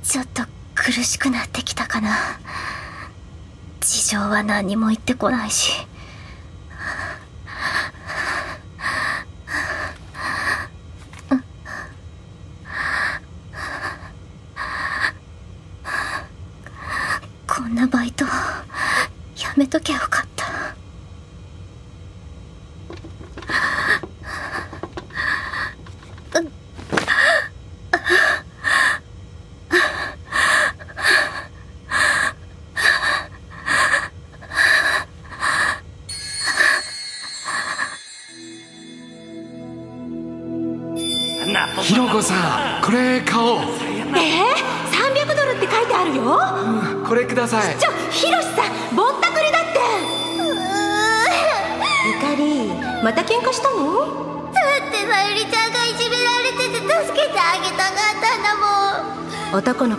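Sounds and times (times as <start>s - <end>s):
girl breathing heavily: 6.0s - 12.0s, 12.7s - 15.2s, 23.4s - 25.9s.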